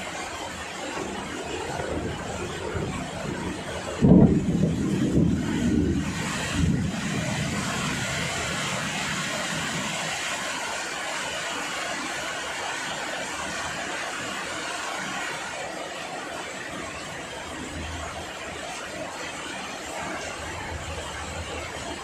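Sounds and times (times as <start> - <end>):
heavy rain pouring: 0.0 - 22.0
low thunder rumble: 1.1 - 8.8.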